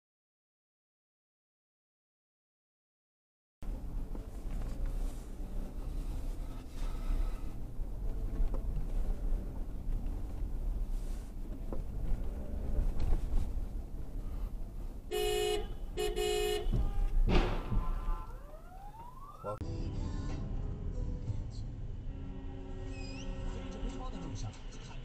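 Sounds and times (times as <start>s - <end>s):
road rumble inside car: 3.6s - 19.2s
cars colliding: 7.5s - 19.1s
car horn blasts: 15.1s - 18.4s.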